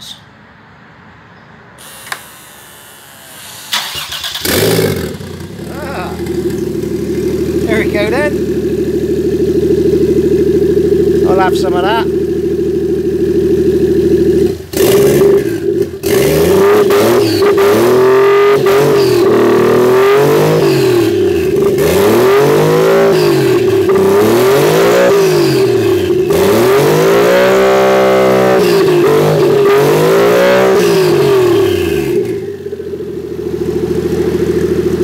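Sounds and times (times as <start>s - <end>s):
steady whine: 1.8s - 11.7s
car engine revving: 2.4s - 35.0s.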